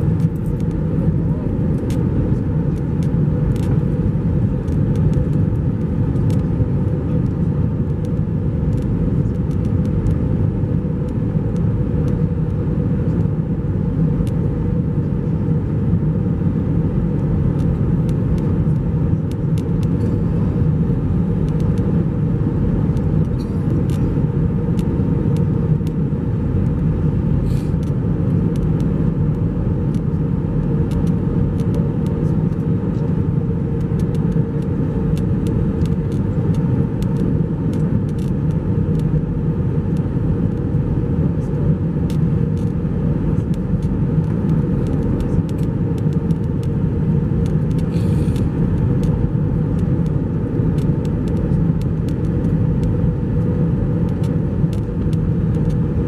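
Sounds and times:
jet engine rumble: 0.0 - 56.0
rushing air: 47.7 - 48.6.

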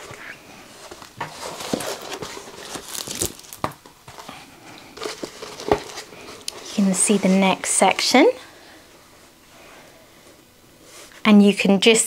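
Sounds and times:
plastic film crinkling and rustling: 0.0 - 8.0.

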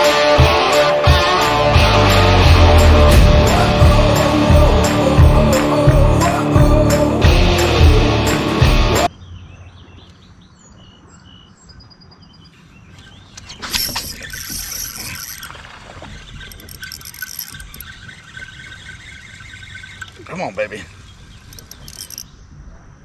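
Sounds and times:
songbirds chirping: 9.1 - 23.0
fishing reel being cranked: 13.4 - 20.6, 21.5 - 22.2.

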